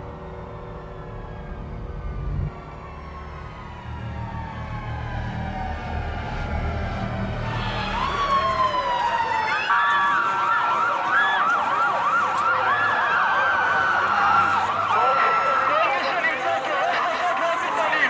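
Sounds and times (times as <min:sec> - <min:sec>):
emergency vehicle sirens wailing: 0:00.0 - 0:18.0
siren fast yelp: 0:02.7 - 0:16.2.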